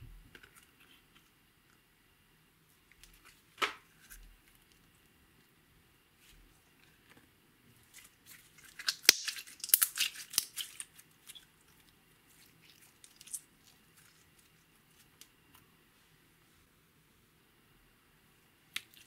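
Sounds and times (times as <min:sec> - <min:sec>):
slime crackling and popping: 0:07.9 - 0:15.3.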